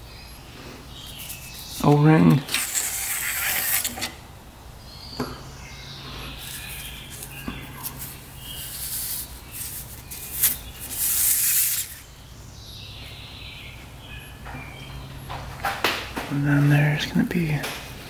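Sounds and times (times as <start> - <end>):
rustling and scraping: 0.6 - 4.2, 6.3 - 12.0.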